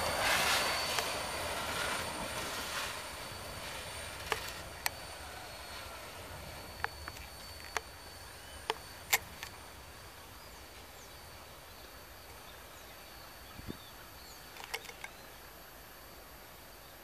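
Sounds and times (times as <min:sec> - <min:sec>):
freight train rumbling: 0:00.0 - 0:11.6.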